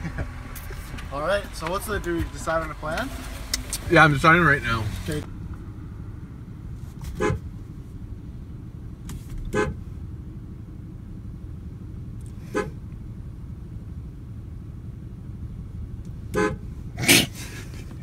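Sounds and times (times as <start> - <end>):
vehicles idling rumble: 0.0 - 18.0
car horn toots: 7.1 - 7.5, 9.5 - 9.8, 12.5 - 12.8, 16.3 - 17.2.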